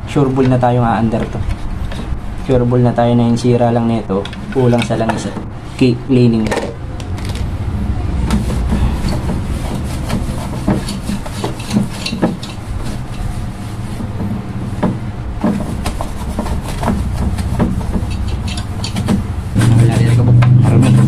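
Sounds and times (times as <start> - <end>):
steady low rumble: 0.0 - 21.0
cloth rag rubbing: 8.2 - 21.0
small knocks and taps: 14.0 - 19.3.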